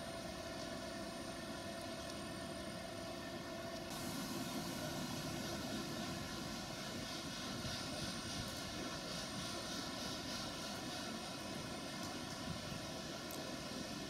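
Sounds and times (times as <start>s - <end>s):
high-speed train approaching: 3.9s - 14.0s.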